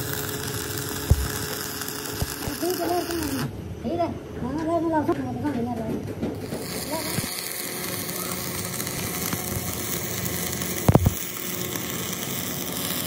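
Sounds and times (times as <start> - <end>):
arc welding crackling sizzle: 0.0 - 3.5, 6.3 - 13.0.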